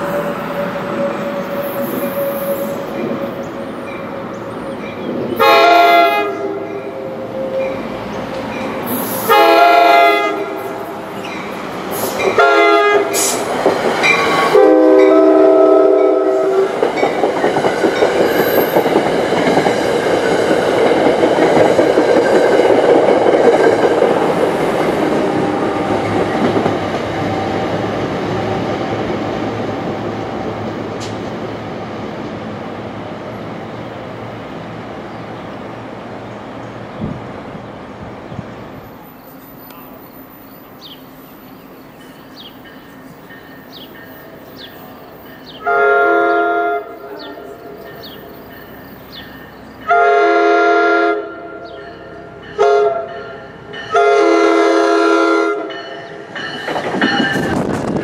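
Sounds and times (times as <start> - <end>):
train horn blasts: 5.4 - 7.5, 9.2 - 10.9, 12.2 - 13.4, 14.2 - 16.8, 45.6 - 48.2, 49.8 - 56.2
train wheels clattering on rails: 10.5 - 29.1, 30.9 - 31.4, 55.6 - 58.0.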